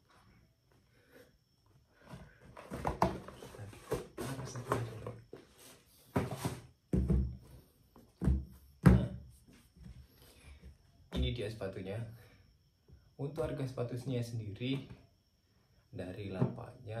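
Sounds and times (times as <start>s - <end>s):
shoes thumping on table: 6.1s - 9.3s.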